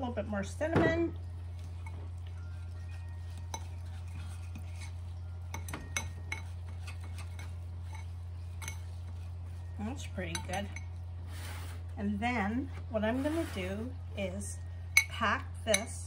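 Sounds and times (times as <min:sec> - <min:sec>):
steady low hum: 0:00.0 - 0:16.0
spoon clinking against bowl: 0:01.5 - 0:11.1, 0:14.9 - 0:16.0
metal spoon scraping in bowl: 0:01.5 - 0:11.8, 0:13.0 - 0:14.0.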